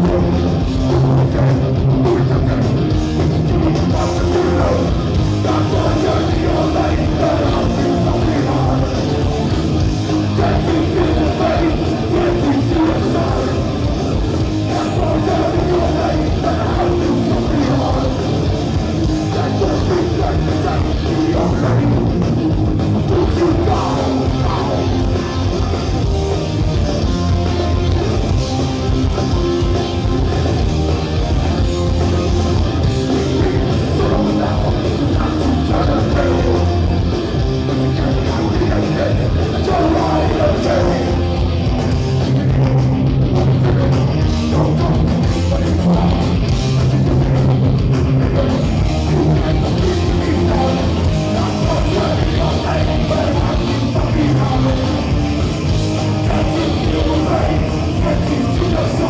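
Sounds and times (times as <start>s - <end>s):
punk band playing live: 0.0s - 59.0s
lead singer vocals: 3.5s - 9.5s, 10.2s - 25.3s, 33.1s - 41.4s, 43.5s - 55.4s, 56.0s - 59.0s.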